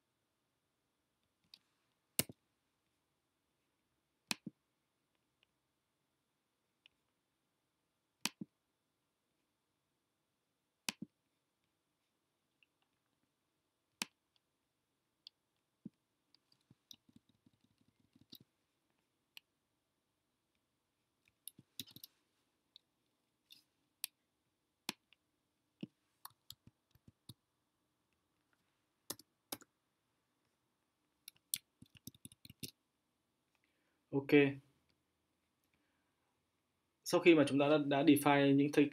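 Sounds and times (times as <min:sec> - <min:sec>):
mouse and keyboard clicks: 0:31.3 - 0:32.8.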